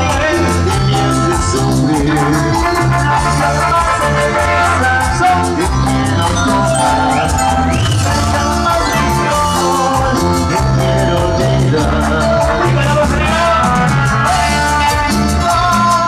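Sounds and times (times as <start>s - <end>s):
electric bass: 0.0s - 16.0s
electronic keyboard: 4.4s - 12.9s.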